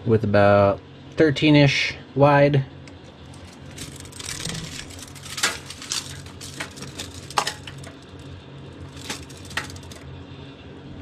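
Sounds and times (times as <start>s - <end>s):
low steady hum: 0.0s - 11.0s
tape measure clinking on wire basket: 3.3s - 10.0s.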